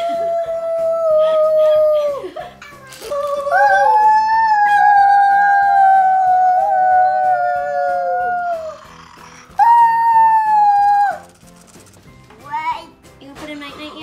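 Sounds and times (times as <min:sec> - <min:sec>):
background music with steady beat: 0:00.0 - 0:14.0
electronic wolf howl: 0:03.2 - 0:11.3.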